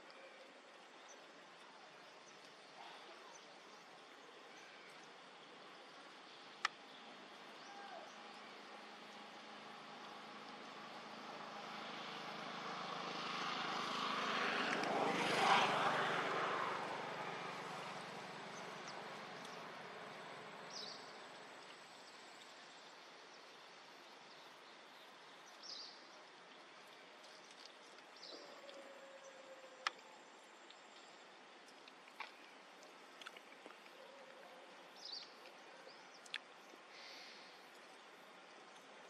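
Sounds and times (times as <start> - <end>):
distant motor passing by: 8.5 - 21.5.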